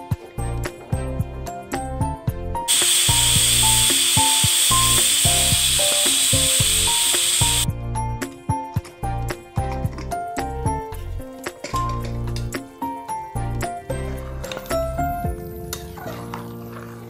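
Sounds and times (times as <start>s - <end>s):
background music: 0.0s - 17.0s
pressure cooker steam hissing: 2.7s - 7.7s.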